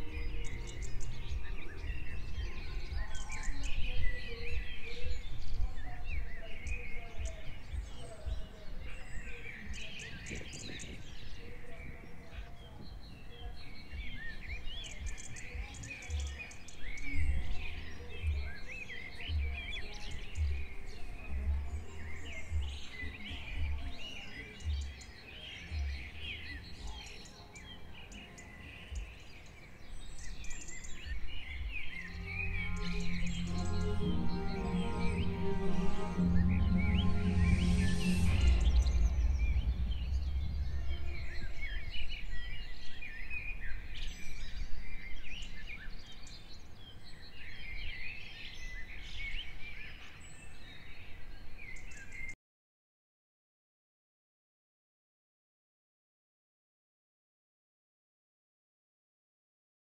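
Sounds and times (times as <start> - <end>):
birds chirping and calling: 0.0 - 50.9
music with pulsing bass: 32.0 - 41.2.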